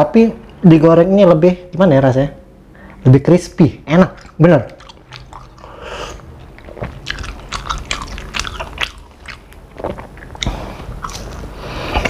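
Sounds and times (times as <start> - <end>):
person chewing crispy food: 4.2 - 12.0.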